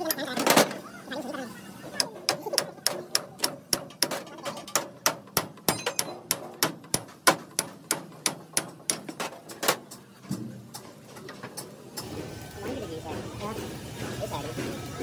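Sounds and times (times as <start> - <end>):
hammer striking: 2.0 - 10.8.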